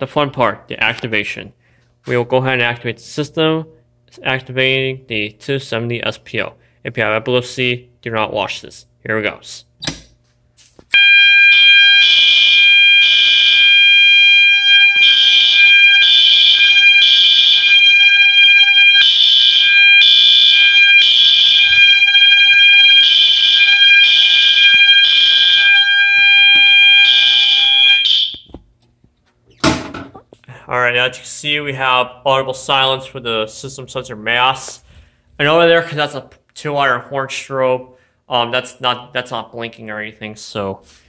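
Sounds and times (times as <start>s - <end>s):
fire alarm horns blasting: 10.9s - 28.5s
steady high alarm tone: 10.9s - 28.5s.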